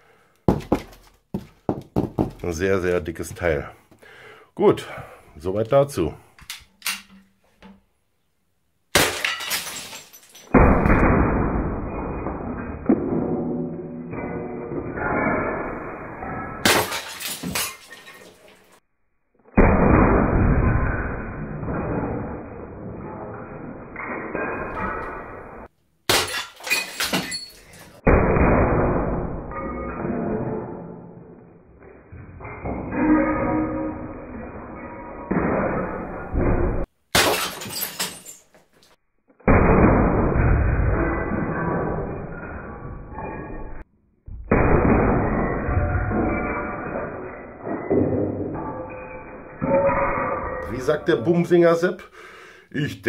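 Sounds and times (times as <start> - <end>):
glass bottle shattering: 8.9 - 18.8, 19.6 - 30.8, 32.1 - 38.6, 39.5 - 43.8, 44.5 - 51.1
glass breaking: 8.9 - 18.8, 19.6 - 38.7, 39.4 - 51.3.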